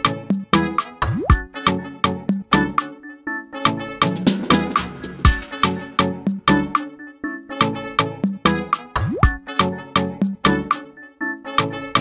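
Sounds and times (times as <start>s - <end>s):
instrumental music with drum beat: 0.3s - 1.6s, 3.7s - 7.0s, 8.2s - 10.8s.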